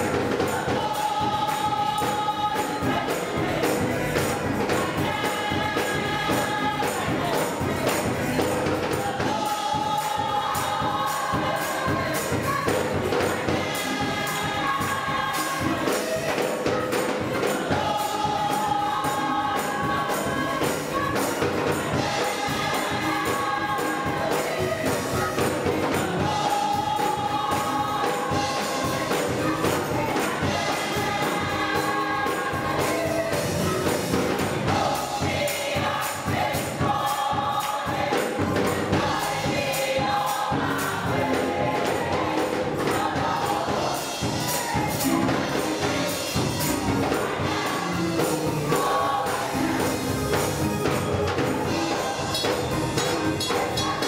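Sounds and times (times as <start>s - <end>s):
choir singing: 0.0s - 54.0s
tambourine beat: 0.0s - 54.0s.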